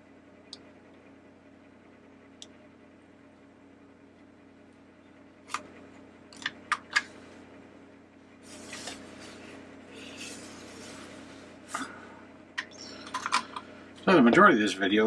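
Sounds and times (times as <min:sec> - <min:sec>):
plastic rubbing and scraping: 0:08.5 - 0:11.3.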